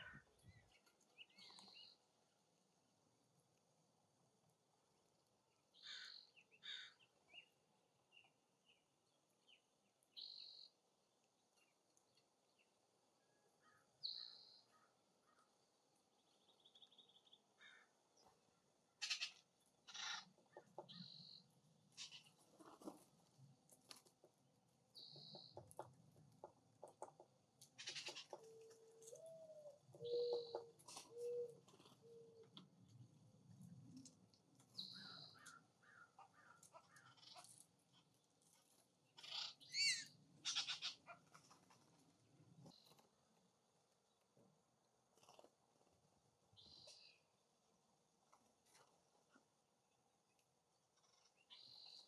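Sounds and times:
soft bird chirps: 0.0s - 2.1s, 5.5s - 15.5s, 19.0s - 22.4s, 24.9s - 25.9s, 27.8s - 33.0s, 34.7s - 41.6s, 46.5s - 47.4s, 50.3s - 52.0s
harsh bird calls: 19.0s - 21.4s, 39.2s - 41.2s
low drawn-out coo: 28.4s - 32.5s
bird whistle: 39.7s - 40.1s.

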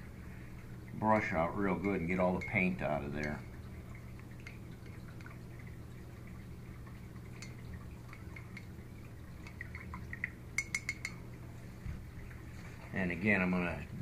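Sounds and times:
paintbrush rinsed in water: 0.3s - 14.0s
brush clinking on mug rim: 10.6s - 11.2s.

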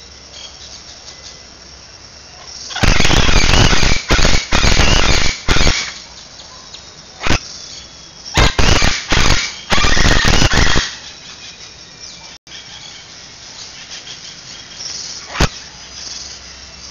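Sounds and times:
macaws screeching: 2.7s - 6.0s, 8.3s - 11.3s.

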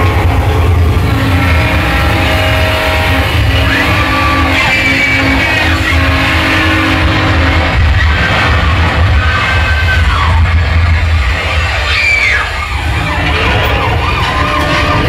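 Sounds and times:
held music notes: 0.0s - 8.5s
deep rumble: 0.0s - 15.0s.

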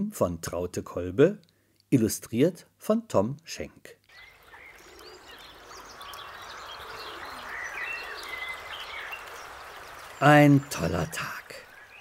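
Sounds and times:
small birds chirping: 4.1s - 12.0s
steady rustling hiss: 4.1s - 12.0s.

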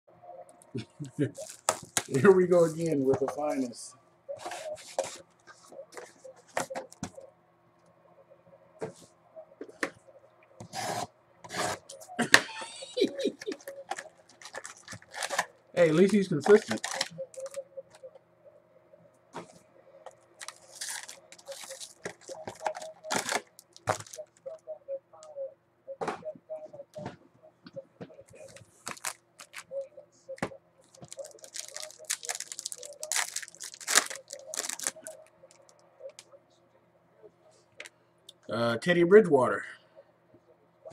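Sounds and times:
wrapper crinkling and tearing: 1.3s - 2.8s, 13.6s - 17.6s, 20.4s - 24.4s, 28.5s - 29.8s, 30.9s - 35.7s.

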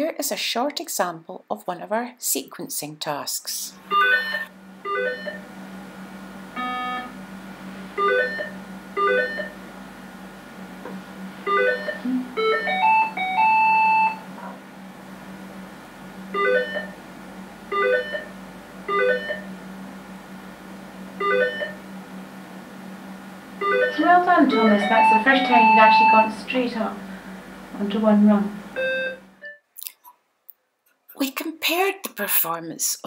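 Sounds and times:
low hum: 3.7s - 12.6s, 13.6s - 29.5s
held electronic tone: 11.4s - 14.3s, 23.6s - 26.6s, 28.8s - 29.6s.

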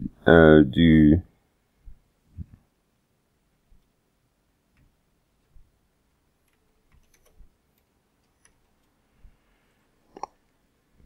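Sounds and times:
computer keyboard keystrokes: 6.4s - 8.9s.

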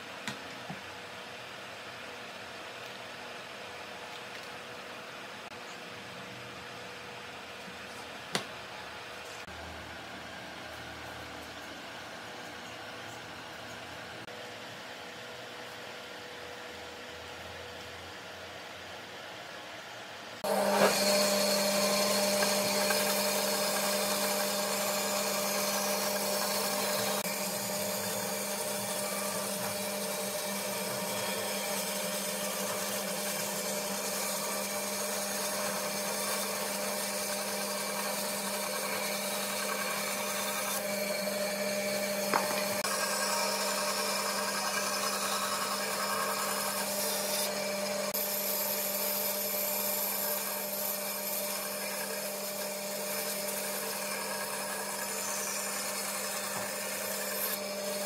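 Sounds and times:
bandsaw cutting wood: 20.4s - 58.0s.

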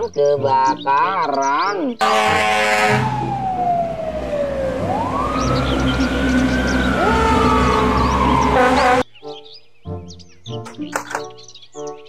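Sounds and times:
truck engines rumbling: 0.0s - 9.1s
loud horn blast: 2.0s - 3.5s, 4.2s - 9.1s
fire truck siren wailing: 2.0s - 9.1s.

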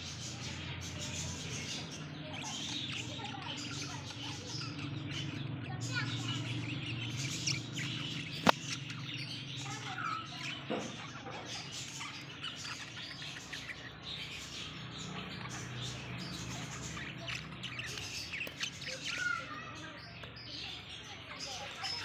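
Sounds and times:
budgerigars chirping and chattering: 0.0s - 22.0s
sharp click: 8.3s - 8.8s.

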